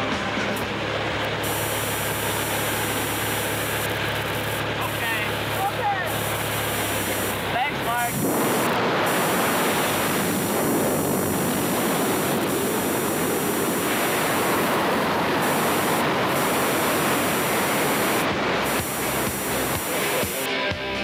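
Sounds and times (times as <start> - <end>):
airplane engine noise: 0.0 - 20.8
wind rushing: 6.8 - 20.4.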